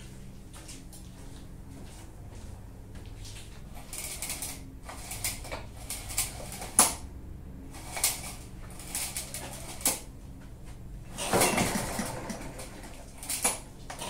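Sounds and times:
engine turning over: 11.0s - 14.0s
pull-starter cord rasping: 11.2s - 14.0s.

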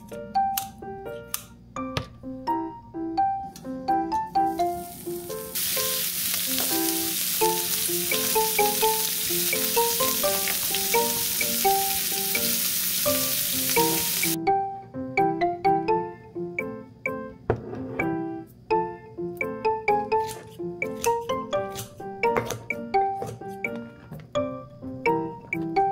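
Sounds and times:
piano-like background music: 0.0s - 25.9s
meat sizzling in a frying pan: 4.5s - 14.4s.

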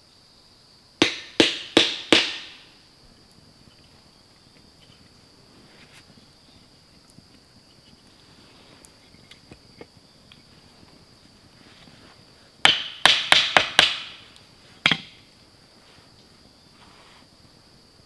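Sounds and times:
sharp wooden knocks: 1.0s - 2.7s, 12.6s - 14.2s, 14.8s - 15.2s.

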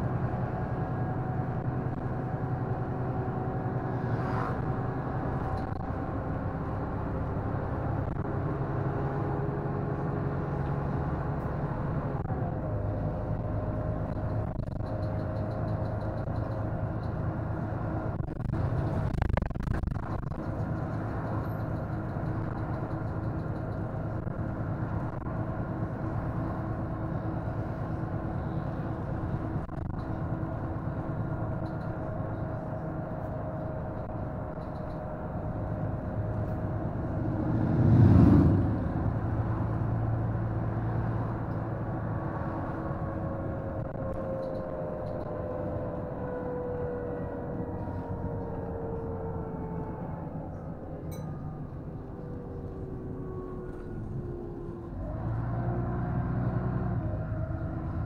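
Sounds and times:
bus engine droning with whine: 0.0s - 58.0s
loud low rumble: 24.1s - 55.2s.

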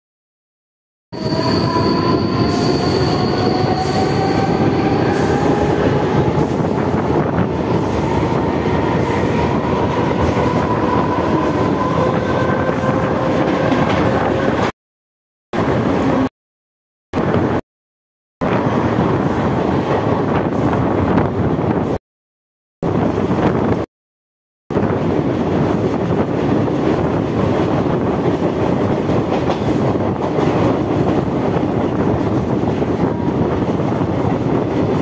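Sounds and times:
train wheel squeal: 1.2s - 6.7s
train rumble and rail clatter: 1.2s - 14.8s, 15.6s - 16.3s, 17.2s - 17.6s, 18.4s - 22.0s, 22.8s - 23.9s, 24.7s - 35.0s.

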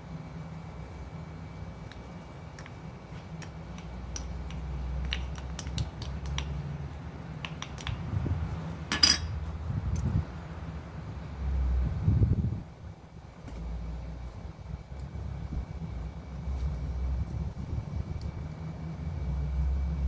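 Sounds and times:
low rumble: 11.0s - 20.0s.

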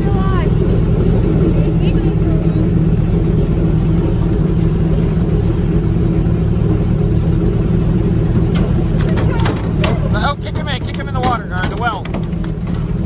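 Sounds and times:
airboat engine droning: 0.0s - 13.0s.

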